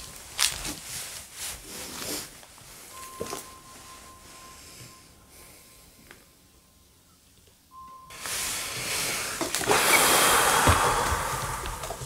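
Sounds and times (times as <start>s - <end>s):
loud rustling and scraping: 0.0s - 2.9s, 8.1s - 11.0s
knocks: 10.6s - 12.0s.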